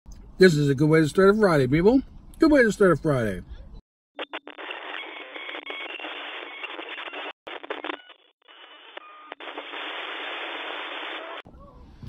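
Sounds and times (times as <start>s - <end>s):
radio static hiss: 4.2s - 11.4s.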